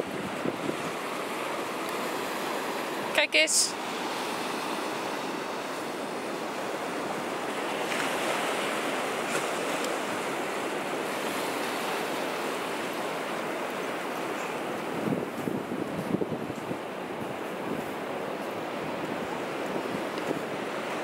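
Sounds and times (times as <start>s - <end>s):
wind buffeting microphone: 0.0s - 1.1s, 14.2s - 21.0s.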